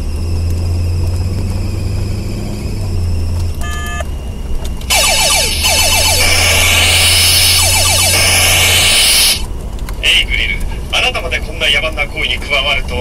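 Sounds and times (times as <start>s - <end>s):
fan belt whine: 0.0s - 12.8s
car engine drone: 0.0s - 13.0s
short electronic beep: 3.6s - 4.0s
electronic falling sweeps: 4.9s - 9.5s.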